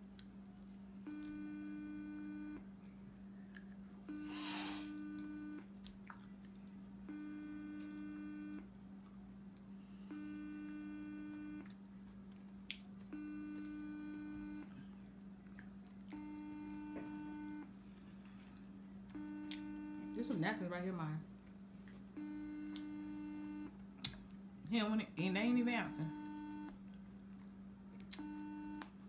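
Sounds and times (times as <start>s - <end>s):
steady low hum: 0.0s - 29.0s
phone ringback tone: 16.2s - 17.6s, 25.9s - 26.7s, 28.2s - 28.8s.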